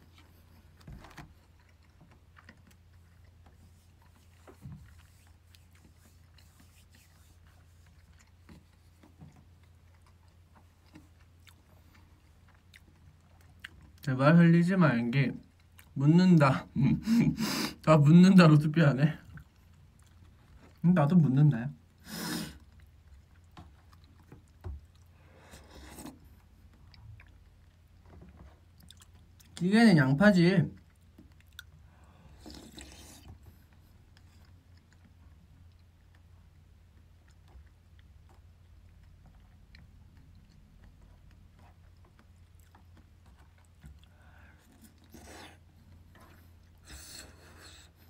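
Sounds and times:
person chewing: 0.0 - 14.1, 15.4 - 16.0, 19.2 - 20.8, 21.8 - 29.6, 30.7 - 48.0
low room hum: 0.0 - 48.0
soft airy slurp: 1.4 - 13.9, 31.0 - 35.2
person eating with a spoon: 30.8 - 36.2.

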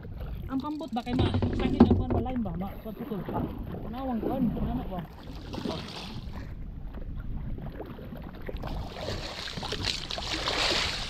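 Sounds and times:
water splashing: 0.0 - 11.0
water washing around boat: 0.0 - 11.0.

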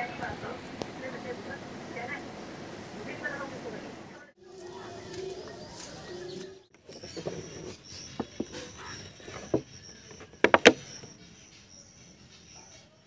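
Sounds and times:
plastic bottle clicks and knocks: 10.4 - 10.8.

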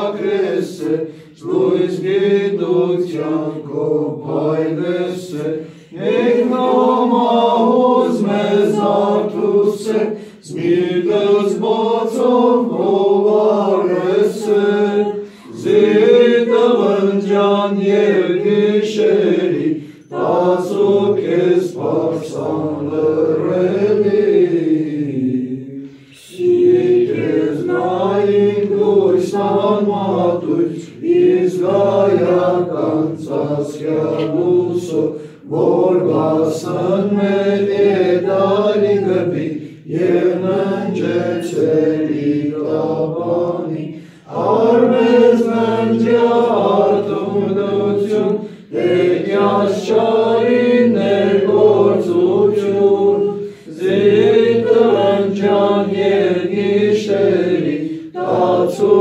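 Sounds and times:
a cappella hymn chanting: 0.0 - 59.0.

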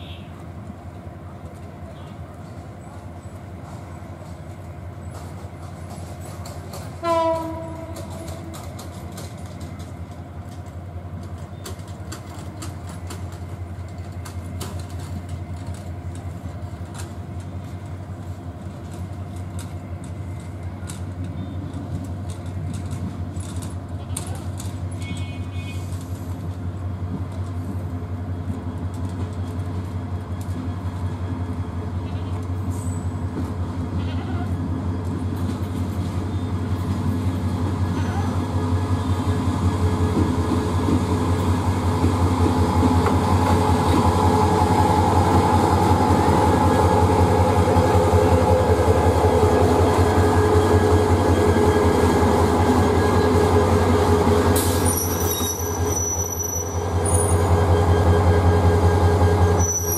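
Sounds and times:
diesel locomotive engine humming: 0.0 - 59.9
train horn blast: 7.0 - 8.5.

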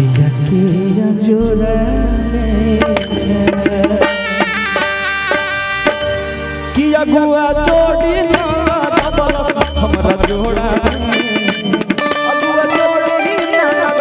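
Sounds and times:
live folk band playing: 0.0 - 14.0
deep bass: 1.2 - 4.0, 5.8 - 11.2
bending melody line: 1.5 - 14.0
fast percussion beat: 2.7 - 6.5, 7.6 - 14.0.

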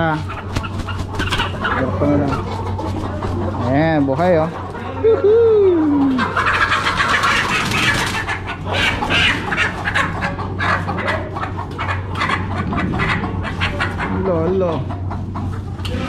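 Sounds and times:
chickens clucking and squawking: 0.0 - 16.0.

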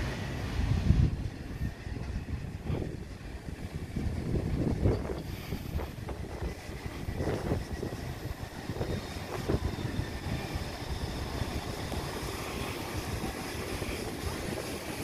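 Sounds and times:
electric train wheels rumbling: 0.0 - 15.0.

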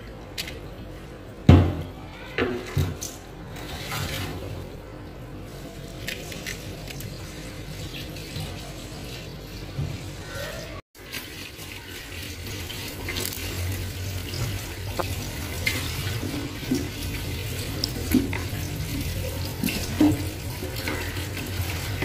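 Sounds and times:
water running and splashing: 5.5 - 22.0.

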